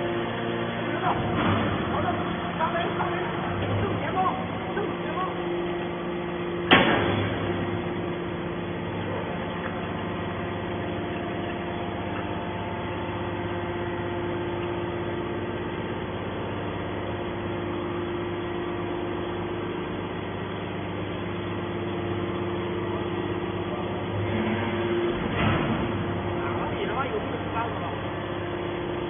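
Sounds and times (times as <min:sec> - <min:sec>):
hydraulic power unit humming: 0:00.0 - 0:29.0.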